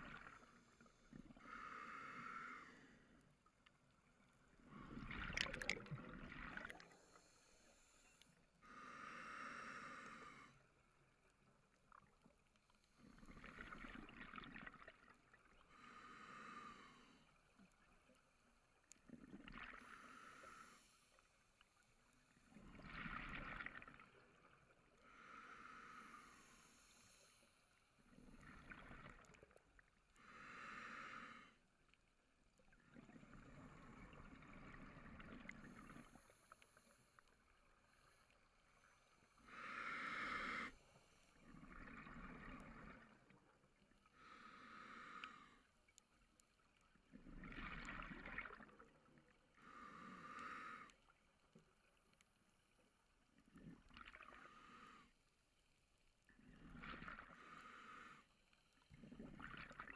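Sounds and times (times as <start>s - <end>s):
diver breathing through regulator: 1.4s - 3.2s, 6.5s - 10.6s, 15.7s - 17.3s, 19.8s - 21.2s, 25.1s - 27.6s, 30.2s - 31.6s, 39.4s - 41.4s, 44.2s - 45.7s, 49.6s - 51.0s, 57.2s - 58.4s.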